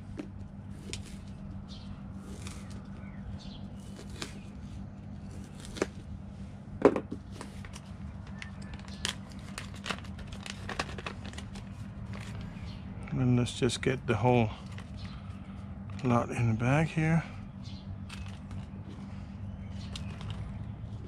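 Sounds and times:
knife crunching through dry food: 0.0s - 6.1s
low hum: 0.0s - 21.0s
plastic zip bag crinkling: 9.0s - 12.4s.

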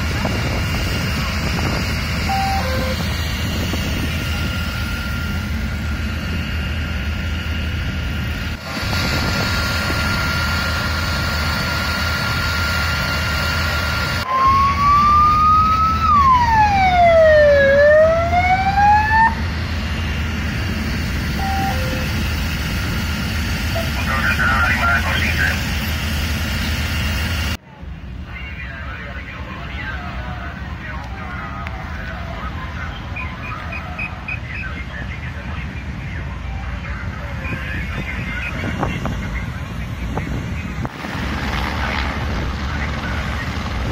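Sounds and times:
siren wailing: 0.0s - 25.8s
low engine rumble: 0.0s - 43.9s.

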